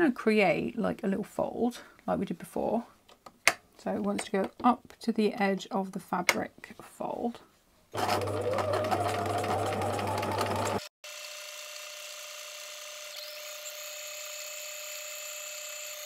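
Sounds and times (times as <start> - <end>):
sewing machine stitching: 8.0 - 10.9.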